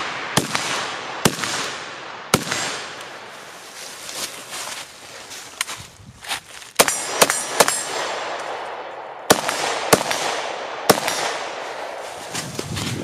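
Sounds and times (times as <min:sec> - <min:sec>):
rifle shots with echo: 0:00.0 - 0:03.3, 0:06.8 - 0:12.2.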